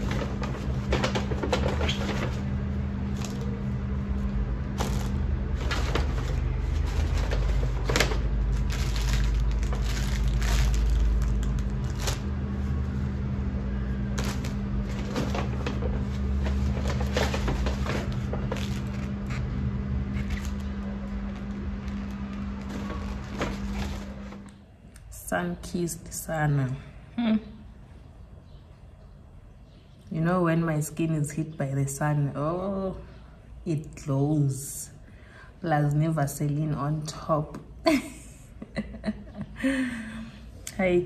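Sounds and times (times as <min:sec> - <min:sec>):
steady low hum: 0:00.0 - 0:41.0
objects and packaging handled: 0:04.7 - 0:12.6, 0:14.0 - 0:24.6.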